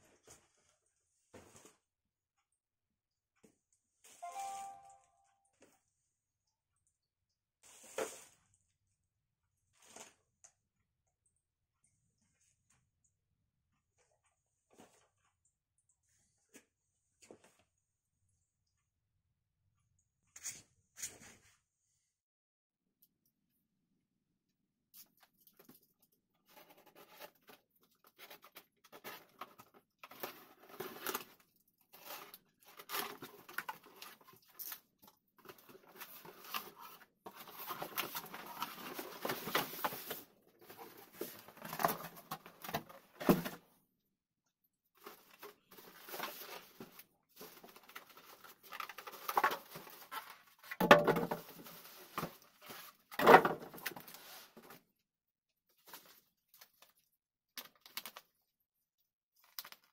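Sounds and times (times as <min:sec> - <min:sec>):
cardboard and plastic rustling: 0:25.1 - 0:43.8, 0:45.0 - 0:54.9.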